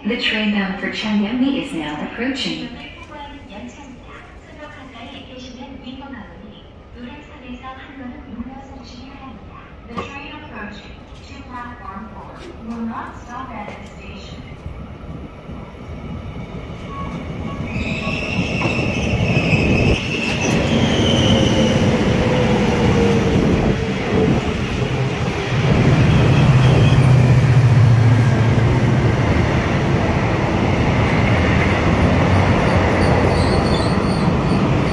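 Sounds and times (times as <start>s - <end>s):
train wheels rumbling on rails: 12.2s - 34.9s.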